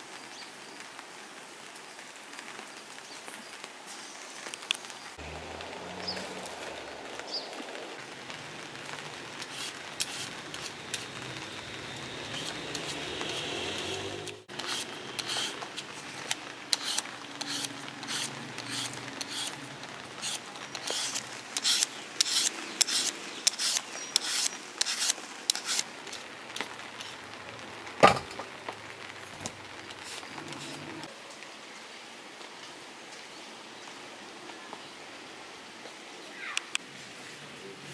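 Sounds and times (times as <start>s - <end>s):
peeler scraping potatoes: 9.4s - 11.2s, 12.2s - 19.6s, 20.2s - 26.2s, 30.0s - 31.0s.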